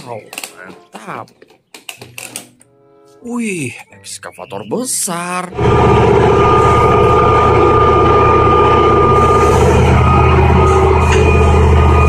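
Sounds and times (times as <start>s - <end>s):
diesel engine droning: 5.5s - 12.0s
thin high whine: 5.5s - 12.0s.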